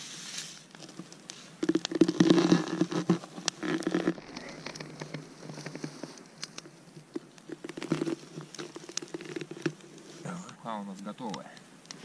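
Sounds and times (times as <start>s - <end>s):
knife creaking through hard fat: 0.8s - 10.0s.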